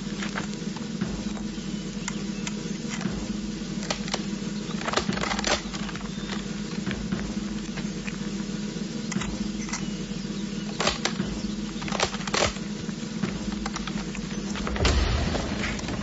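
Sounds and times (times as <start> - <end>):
steady low hum: 0.0 - 16.0
rifles clicking and rattling: 3.8 - 6.9, 10.7 - 16.0.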